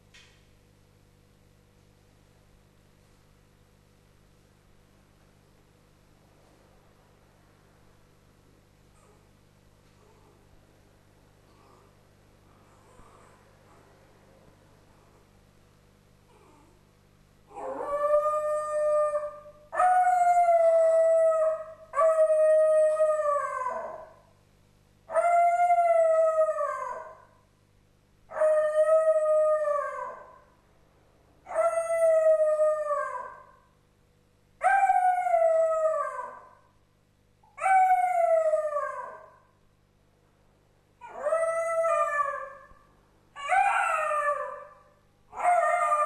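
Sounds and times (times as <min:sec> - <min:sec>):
dog howling: 0:17.5 - 0:24.2, 0:25.1 - 0:27.2, 0:28.3 - 0:30.4, 0:31.5 - 0:33.6, 0:34.6 - 0:36.6, 0:37.6 - 0:39.4, 0:41.0 - 0:42.7, 0:43.4 - 0:46.0.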